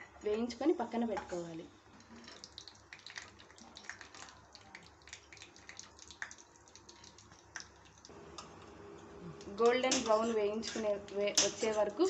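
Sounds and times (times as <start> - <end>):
nuts frying with pops and sizzle: 2.0 - 8.6.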